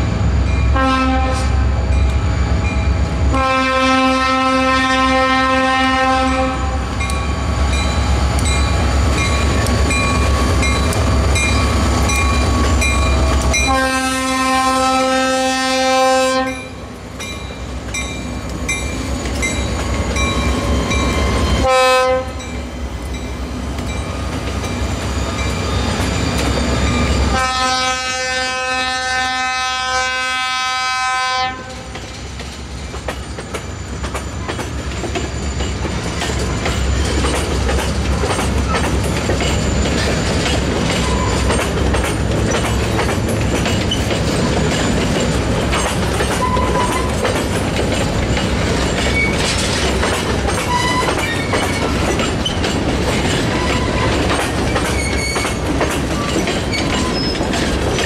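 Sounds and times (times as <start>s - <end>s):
locomotive engines rumbling: 0.0s - 58.0s
train chime horn blasts: 0.6s - 1.8s, 3.3s - 7.2s, 12.1s - 16.8s, 20.9s - 22.5s, 27.2s - 31.9s
train wheels clacking over rail joints: 31.7s - 58.0s.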